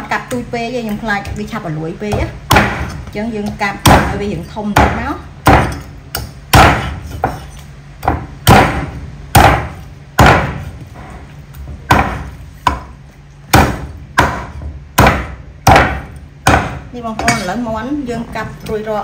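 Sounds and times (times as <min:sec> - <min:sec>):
cleaver chopping on wooden block: 0:02.1 - 0:03.0, 0:04.8 - 0:07.4, 0:08.0 - 0:10.7, 0:11.9 - 0:12.9, 0:13.5 - 0:17.4.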